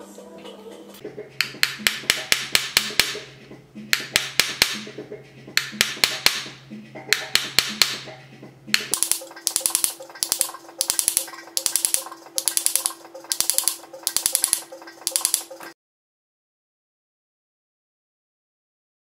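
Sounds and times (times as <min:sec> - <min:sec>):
hammer tapping metal tool: 0:01.4 - 0:03.2, 0:03.9 - 0:04.9.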